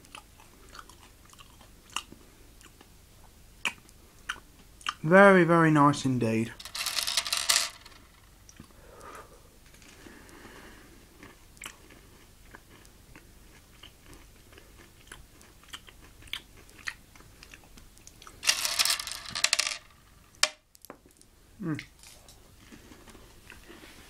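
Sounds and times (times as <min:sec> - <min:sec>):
chewing and crunching candy: 0:00.0 - 0:02.9, 0:10.2 - 0:18.4.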